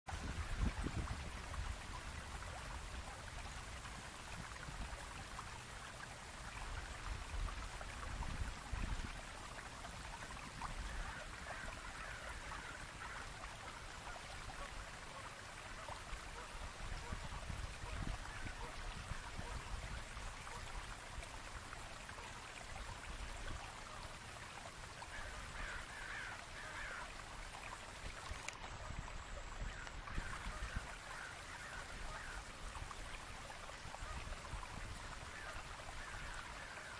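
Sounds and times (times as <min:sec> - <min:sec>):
running water rushing: 0:00.1 - 0:36.9.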